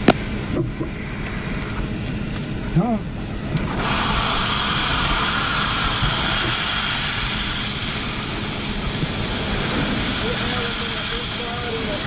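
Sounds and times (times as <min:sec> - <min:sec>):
air rushing from fire hose nozzle: 0:03.6 - 0:12.0.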